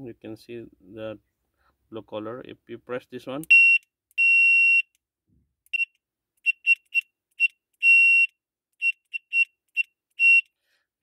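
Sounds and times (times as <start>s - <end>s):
shrill electronic bicycle horn beeps: 5.7s - 10.5s.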